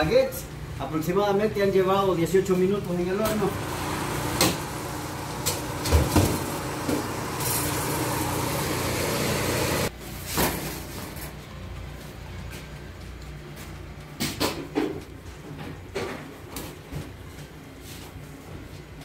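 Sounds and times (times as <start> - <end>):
oven fan whir: 0.0 - 19.0.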